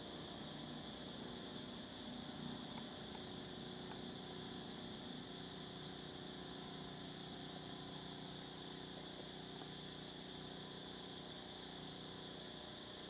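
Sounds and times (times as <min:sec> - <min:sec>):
background hiss and hum: 0:00.0 - 0:13.0.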